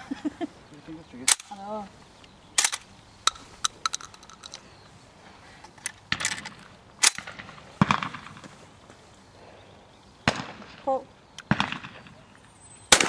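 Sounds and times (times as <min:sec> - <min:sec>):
shotgun shots: 0:06.1 - 0:08.4, 0:10.2 - 0:10.8, 0:11.5 - 0:12.2.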